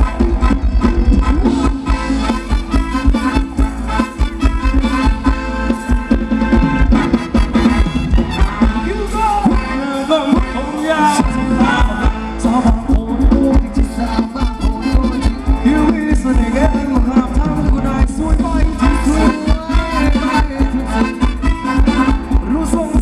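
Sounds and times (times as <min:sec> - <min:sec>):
live dance band over loudspeakers: 0:00.0 - 0:23.0
steady drum beat: 0:00.0 - 0:23.0
person singing: 0:08.4 - 0:23.0.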